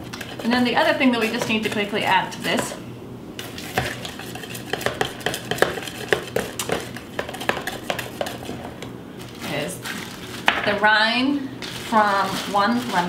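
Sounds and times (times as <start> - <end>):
utensil stirring batter in bowl: 0.0 - 2.8, 3.4 - 8.9.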